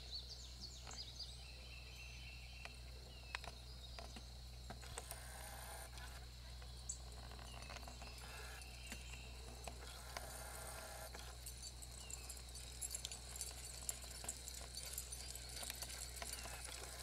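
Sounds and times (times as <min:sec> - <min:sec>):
jingling tags and leash clips: 0:06.4 - 0:17.0
dog paws pattering on asphalt: 0:11.1 - 0:17.0.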